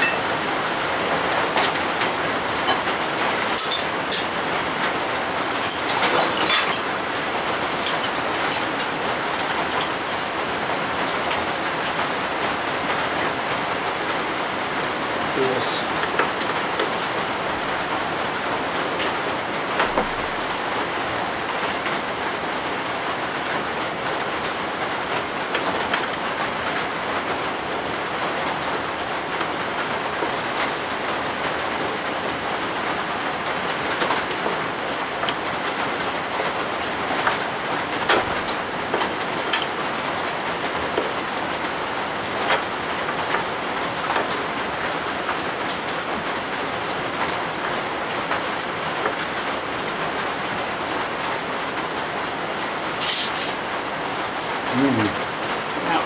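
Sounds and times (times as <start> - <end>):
metal tools clicking on workbench: 0.0 - 0.4, 3.5 - 4.6, 5.5 - 7.0, 7.7 - 8.9, 9.6 - 11.6.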